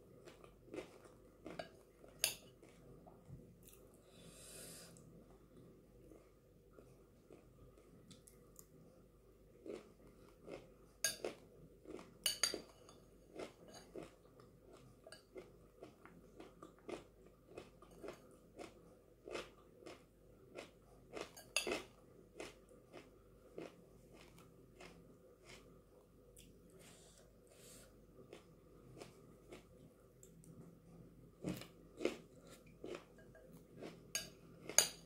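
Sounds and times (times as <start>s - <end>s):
crunchy chewing: 13.3s - 25.8s, 28.2s - 30.6s.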